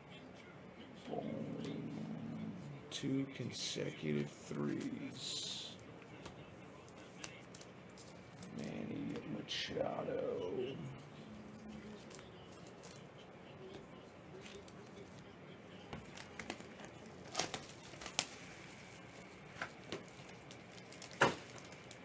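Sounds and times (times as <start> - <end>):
plastic packaging crinkling: 16.0 - 22.0.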